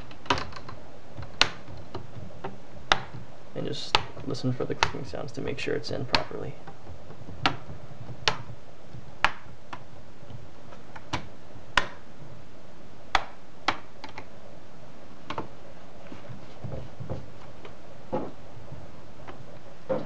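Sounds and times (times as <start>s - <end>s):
plastic clips snapping: 0.0s - 5.1s, 6.0s - 8.5s, 9.2s - 9.9s, 10.7s - 12.1s, 13.1s - 14.3s.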